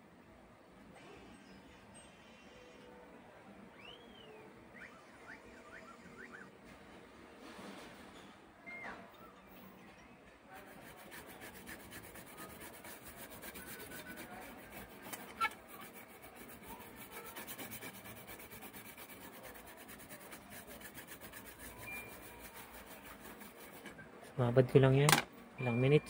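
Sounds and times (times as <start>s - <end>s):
toothbrush scrubbing circuit board: 10.6s - 23.9s.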